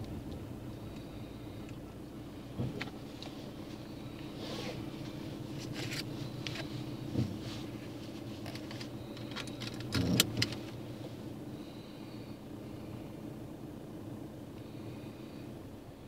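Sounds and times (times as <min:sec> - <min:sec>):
car engine and road hum: 0:00.0 - 0:16.0
light rattling clicks: 0:08.5 - 0:10.8.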